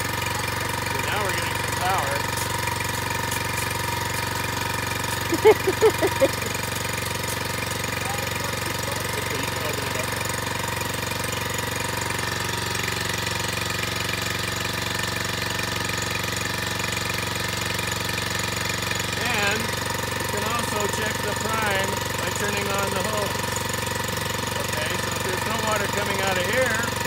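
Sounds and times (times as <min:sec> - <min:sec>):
water pump engine running: 0:00.0 - 0:27.0
water hissing from hose nozzle: 0:00.4 - 0:14.6.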